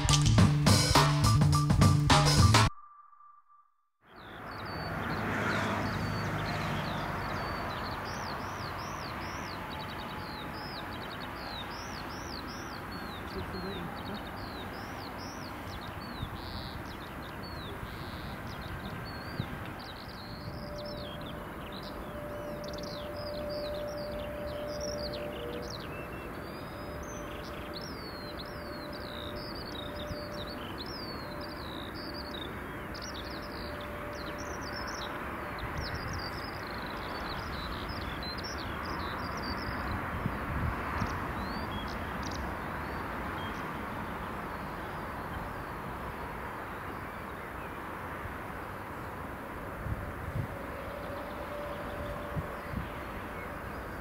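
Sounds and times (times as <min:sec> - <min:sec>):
small birds chirping: 0:04.1 - 0:45.8.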